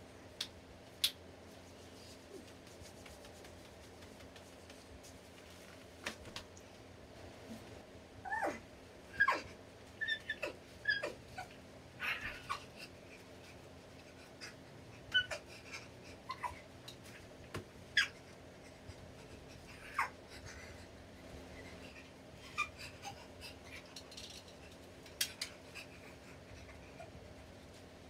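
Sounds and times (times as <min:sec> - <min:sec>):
faint hum: 0:00.0 - 0:28.0
high-pitched whimpers and squeaks: 0:08.2 - 0:12.9, 0:14.3 - 0:17.2, 0:17.9 - 0:18.4, 0:19.2 - 0:20.7.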